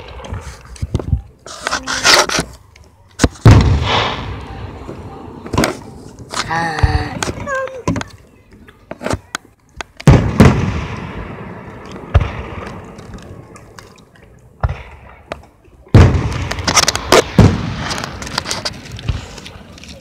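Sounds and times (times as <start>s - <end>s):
fireworks crackling: 0.0s - 7.8s, 9.8s - 20.0s
fireworks bangs: 3.2s - 7.5s, 10.0s - 13.8s, 14.6s - 19.8s.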